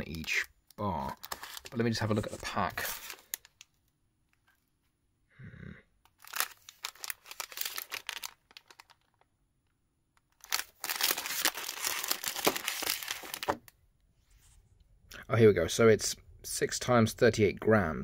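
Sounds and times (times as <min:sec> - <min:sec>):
plastic wrapper crinkling: 0:00.0 - 0:03.8, 0:06.1 - 0:13.7.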